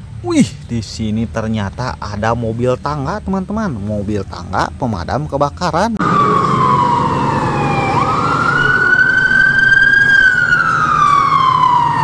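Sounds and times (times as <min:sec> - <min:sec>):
toy siren wailing: 0:06.0 - 0:12.0.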